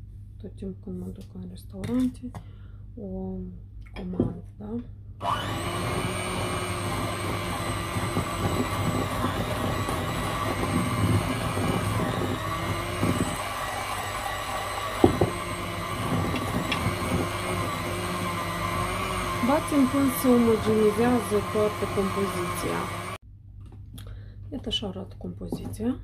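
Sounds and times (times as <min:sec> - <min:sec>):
electric mixer whine: 0:05.2 - 0:23.2.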